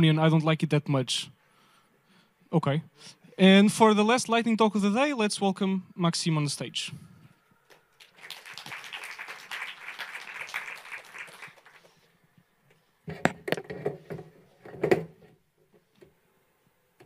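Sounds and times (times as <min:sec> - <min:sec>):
audience applauding: 0:07.9 - 0:12.1.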